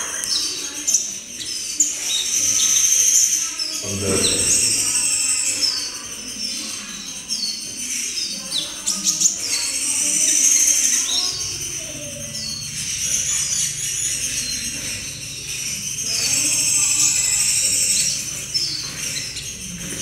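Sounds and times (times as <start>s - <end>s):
bird chipping song: 0.0s - 20.0s.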